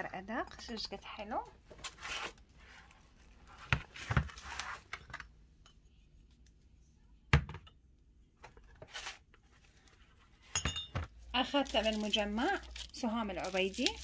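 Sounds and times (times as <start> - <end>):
light ceramic clinks: 10.5 - 11.1.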